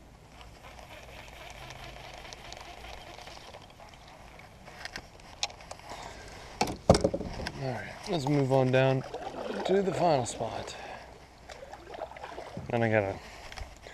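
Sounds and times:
fishing gear clicking and knocking: 0:06.6 - 0:07.6.

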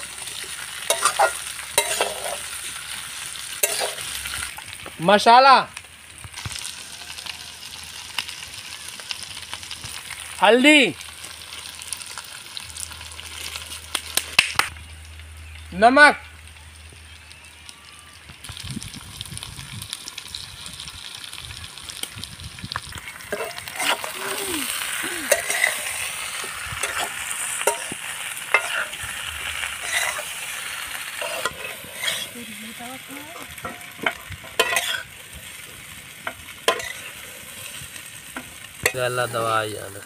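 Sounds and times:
steel spatula scraping a pan: 0:00.0 - 0:02.9, 0:03.5 - 0:04.5, 0:23.3 - 0:24.2, 0:25.3 - 0:26.2, 0:26.8 - 0:32.5, 0:33.6 - 0:35.2, 0:36.6 - 0:37.8
potatoes sizzling in oil: 0:00.0 - 0:40.0.

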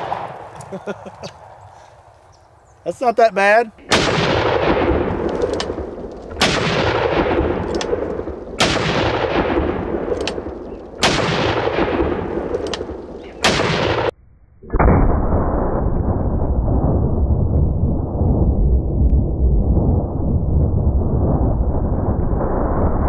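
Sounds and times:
dull deep boom: 0:03.8 - 0:23.0
faint clicks: 0:07.6 - 0:07.9, 0:12.5 - 0:12.9.

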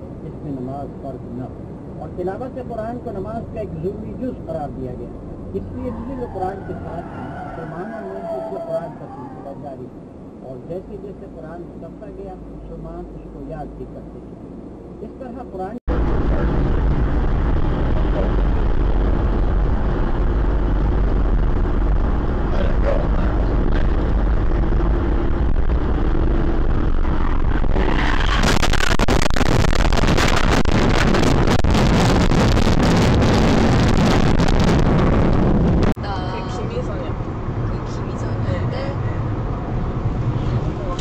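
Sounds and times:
road and wind rumble: 0:00.0 - 0:41.0.

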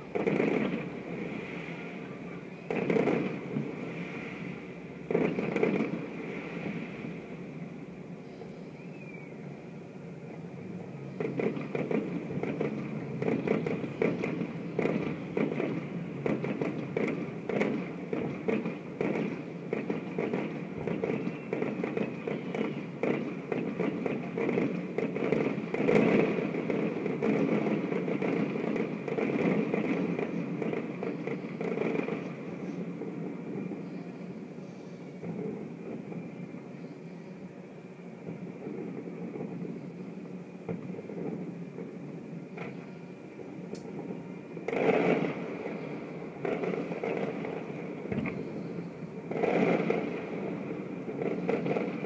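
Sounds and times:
fireworks bangs and crackles: 0:00.0 - 0:08.2, 0:11.1 - 0:36.7, 0:38.1 - 0:42.8, 0:43.4 - 0:52.0
steady background noise: 0:00.0 - 0:52.0.

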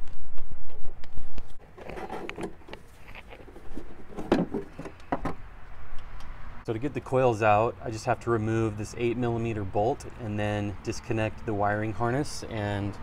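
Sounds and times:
plastic rubbing and creaking: 0:00.7 - 0:05.0.

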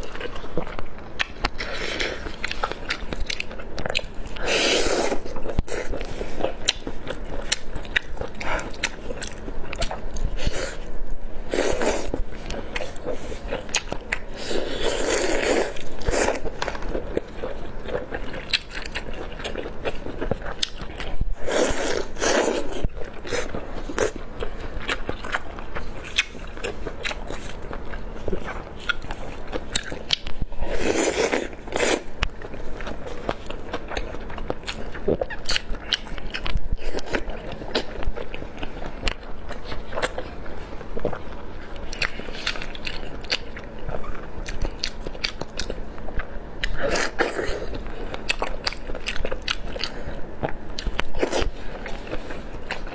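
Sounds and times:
biting and chewing: 0:11.6 - 0:52.9.

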